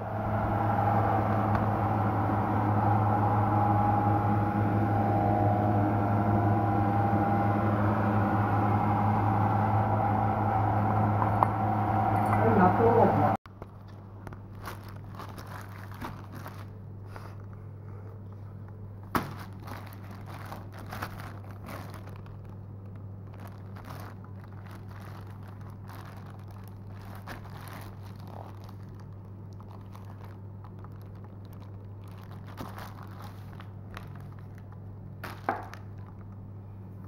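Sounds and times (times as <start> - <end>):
steady low hum: 0.0 - 37.0
plastic and rubber crinkling: 13.5 - 36.4.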